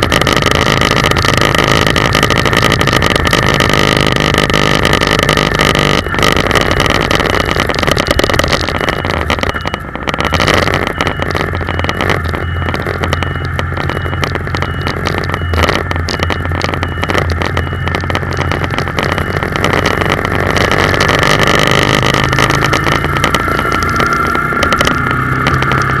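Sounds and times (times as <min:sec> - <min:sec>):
car engine running: 0:00.0 - 0:26.0
road and tyre noise: 0:00.0 - 0:26.0.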